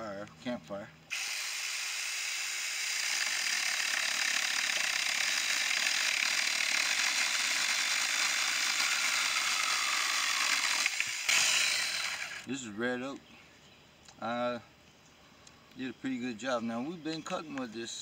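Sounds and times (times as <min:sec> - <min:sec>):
electric chainsaw cutting wood: 0:01.1 - 0:12.5.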